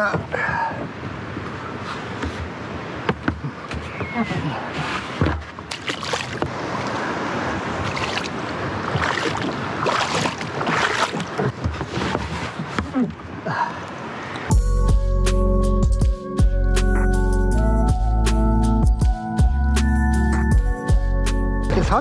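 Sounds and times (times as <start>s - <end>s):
paddle splashing in water: 1.8s - 13.3s.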